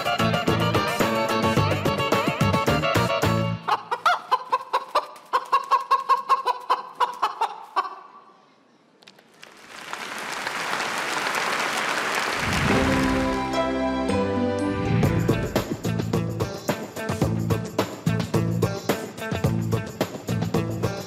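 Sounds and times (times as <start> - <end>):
dance music: 0.0 - 3.6, 12.4 - 21.0
chicken-like clucking: 3.6 - 8.3
audience applause: 9.3 - 13.8.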